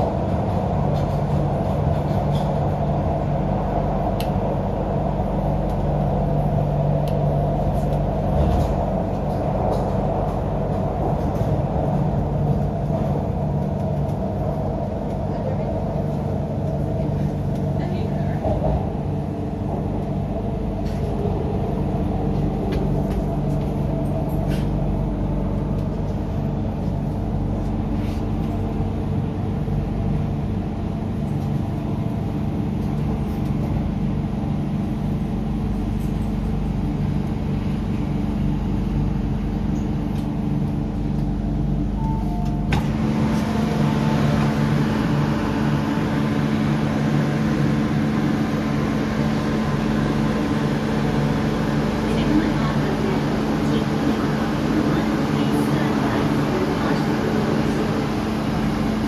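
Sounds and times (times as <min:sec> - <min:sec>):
electric train rumbling: 0:00.0 - 0:59.0
station noise: 0:41.8 - 0:59.0
train doors clacking open: 0:42.1 - 0:45.0.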